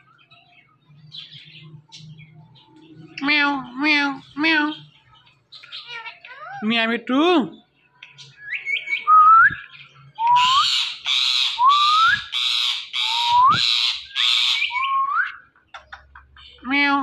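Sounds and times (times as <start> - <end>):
parakeets chirping and whistling: 0.0 - 6.6, 8.0 - 17.0
parakeets squawking: 3.0 - 7.4, 10.4 - 14.9.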